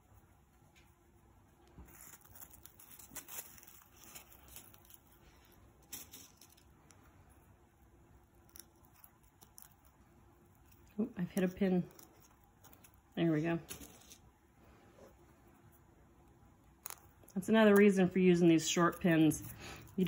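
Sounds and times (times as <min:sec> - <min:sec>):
fabric ribbon rustling: 0:01.8 - 0:07.0.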